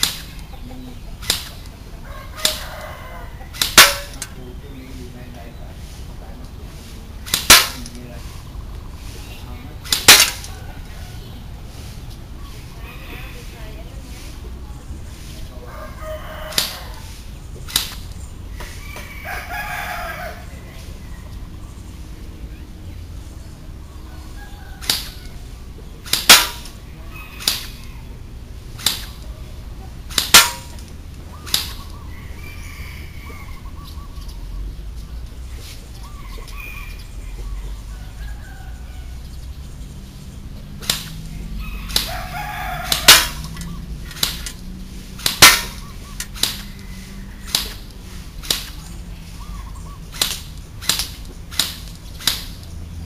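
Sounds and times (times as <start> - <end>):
airsoft gun firing single shots: 0.0 - 0.5, 1.2 - 1.7, 2.4 - 2.6, 3.5 - 4.4, 7.2 - 8.0, 9.8 - 10.5, 17.7 - 18.1, 24.8 - 25.2, 26.0 - 26.8, 27.4 - 27.8, 28.8 - 29.3, 30.1 - 31.9, 40.8 - 41.2, 41.9 - 44.6, 45.2 - 46.8, 47.4 - 48.9, 50.1 - 52.6.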